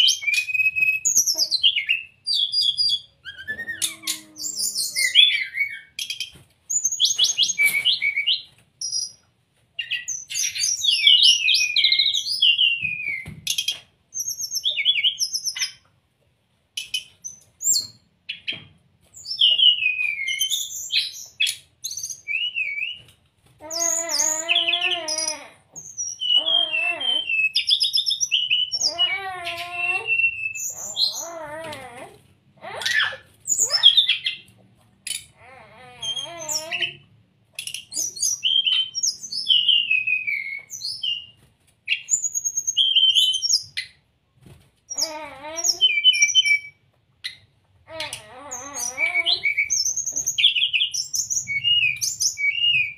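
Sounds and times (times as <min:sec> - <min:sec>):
bird chirping and whistling: 0:00.0 - 0:09.2, 0:09.8 - 0:15.8, 0:16.8 - 0:18.6, 0:19.2 - 0:31.7, 0:32.8 - 0:34.4, 0:35.1 - 0:37.0, 0:37.6 - 0:44.0, 0:44.9 - 0:52.9.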